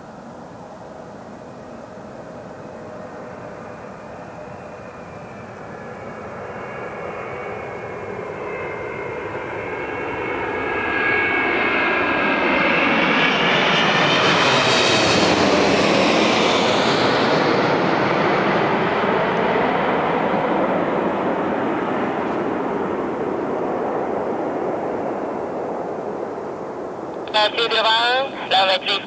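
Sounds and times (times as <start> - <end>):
jet engines whining and roaring: 0.0 - 29.0.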